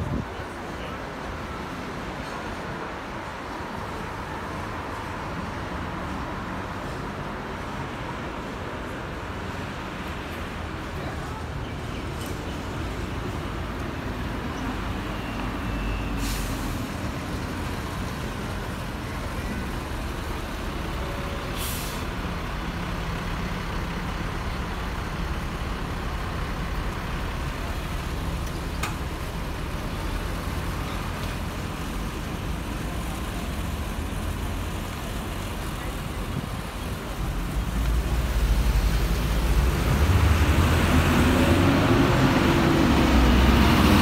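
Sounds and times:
bus engine idling: 0.0s - 44.0s
street traffic: 0.0s - 44.0s
air brake hisses: 16.1s - 16.9s, 21.6s - 22.1s.

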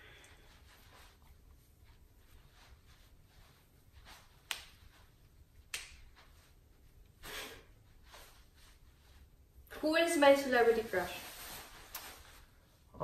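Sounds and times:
soft hiss: 0.0s - 13.0s.

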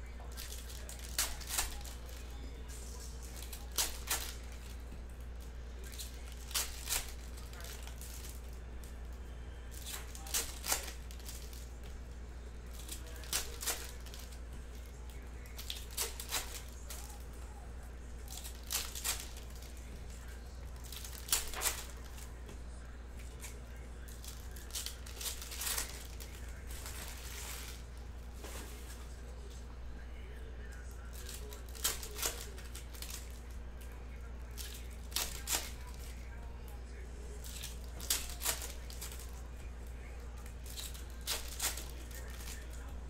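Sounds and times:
foil packs tearing and crinkling: 0.3s - 4.8s, 5.8s - 8.5s, 9.7s - 11.7s, 12.7s - 14.4s, 15.1s - 17.2s, 18.3s - 19.8s, 20.8s - 22.2s, 24.2s - 28.6s, 31.1s - 33.4s, 37.4s - 39.4s, 40.6s - 42.8s.

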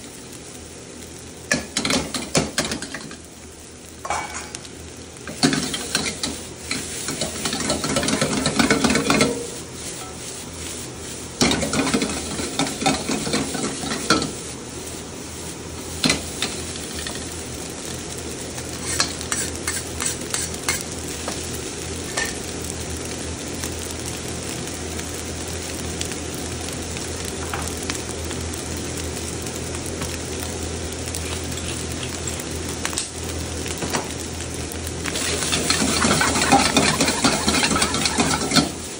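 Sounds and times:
rice sizzling in a wok: 0.0s - 38.9s
metal ladle scraping wok: 5.4s - 10.3s, 18.8s - 20.8s, 35.2s - 38.8s
metal clicking on wok: 35.2s - 38.8s.

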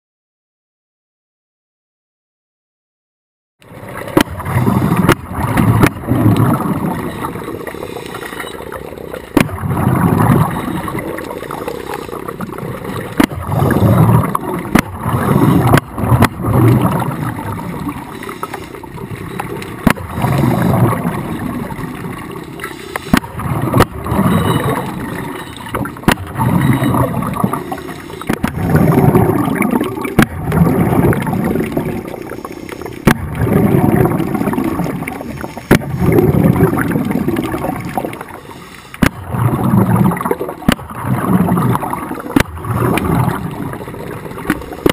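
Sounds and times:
air bubbles gurgling underwater: 3.6s - 44.9s.

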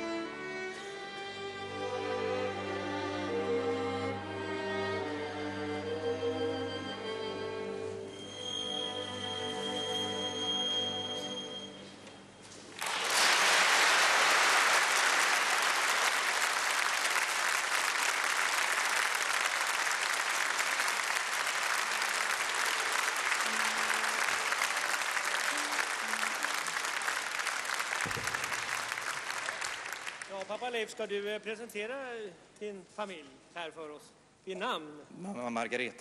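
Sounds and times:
music: 0.0s - 12.7s, 20.9s - 29.7s
audience applauding: 12.8s - 30.9s.

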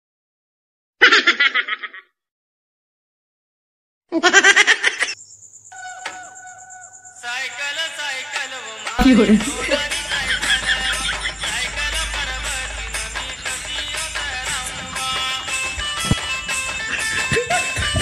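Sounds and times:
comic giggle-like laughter: 1.0s - 2.1s, 4.2s - 5.2s, 9.0s - 11.7s, 16.8s - 18.0s
thin held tone: 5.2s - 7.3s
music: 7.3s - 18.0s.

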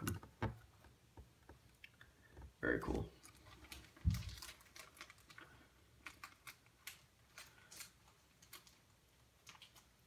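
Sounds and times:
plastic rustling: 3.1s - 10.0s.

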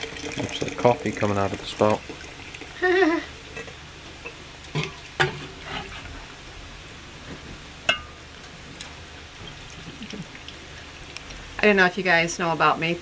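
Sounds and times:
syrup trickling into jar: 0.0s - 3.7s
low hiss: 0.0s - 13.0s
glass clink: 7.9s - 8.2s.

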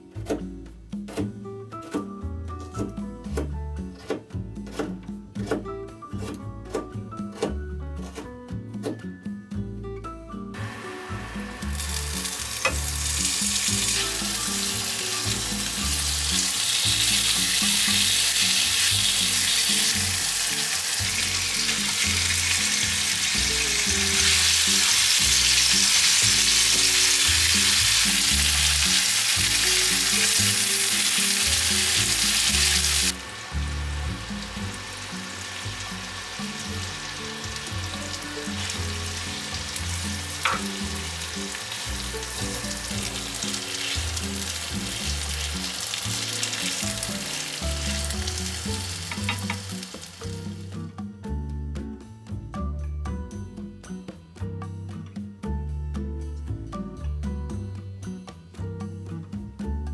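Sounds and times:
food sizzling in a skillet: 10.6s - 50.9s.

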